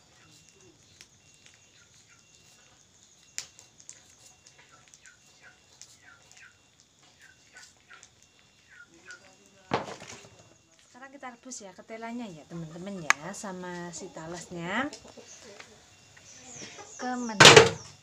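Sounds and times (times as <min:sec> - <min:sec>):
sharp knock: 0:17.4 - 0:17.8.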